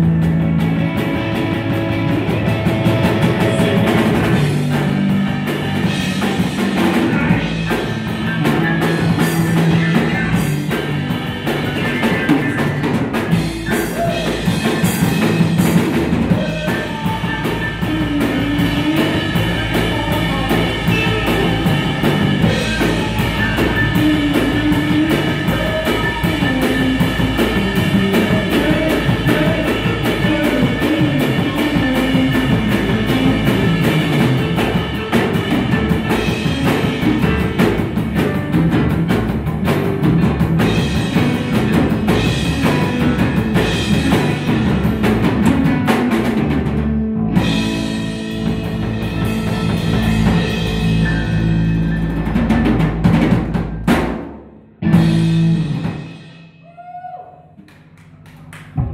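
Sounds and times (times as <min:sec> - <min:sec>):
live band playing: 0:00.0 - 0:56.4
drum hits: 0:52.1 - 0:56.1.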